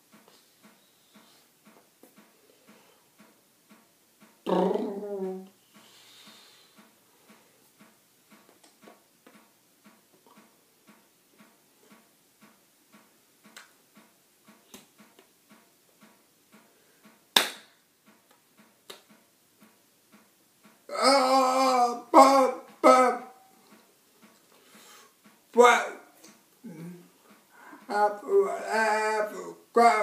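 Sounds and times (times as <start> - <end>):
faint steady clicking: 0.0 - 4.5, 5.4 - 20.9, 23.6 - 25.6.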